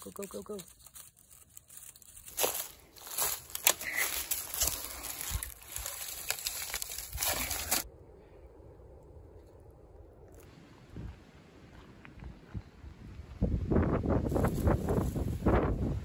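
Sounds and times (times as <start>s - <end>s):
dry leaves and twigs crackling: 0.0s - 8.0s, 14.2s - 15.9s.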